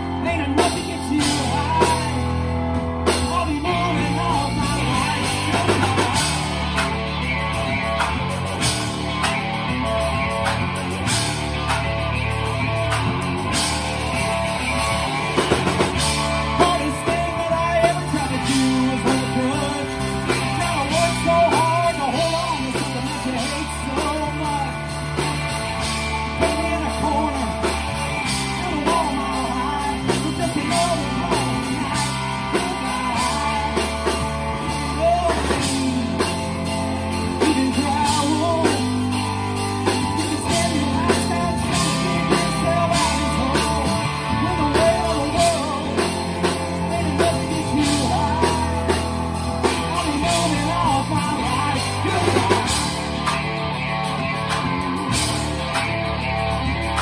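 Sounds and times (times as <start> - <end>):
lead vocal singing: 0.0 - 7.0, 14.6 - 53.4
bass guitar: 0.0 - 57.0
drum kit: 0.0 - 57.0
electric guitar: 0.0 - 57.0
keyboard: 0.0 - 57.0.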